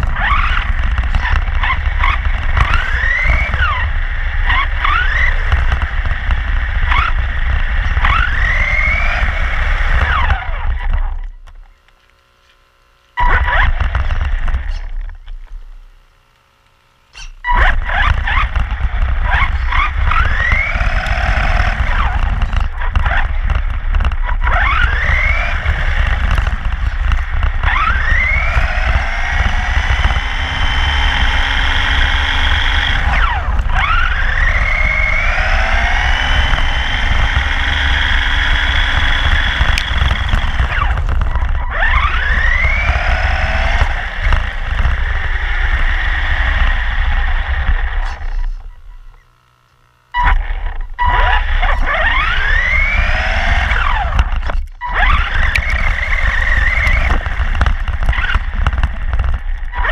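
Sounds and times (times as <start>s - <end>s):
low rumble of chassis on road: 0.0s - 59.9s
rc car motor whining: 0.0s - 59.9s.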